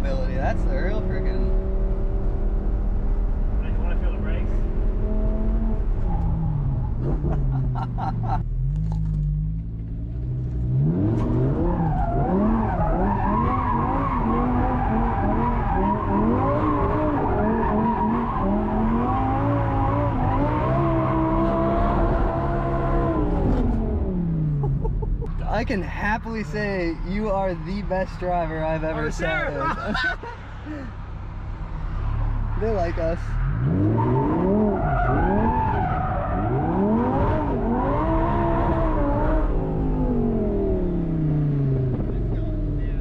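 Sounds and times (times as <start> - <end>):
car engine revving hard: 0.4 - 8.1, 10.1 - 24.6, 33.4 - 42.4.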